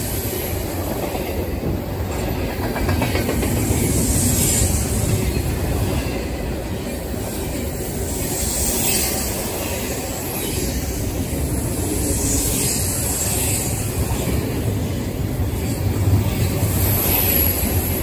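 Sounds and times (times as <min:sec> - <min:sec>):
freight train wheels on rails: 0:00.0 - 0:18.0.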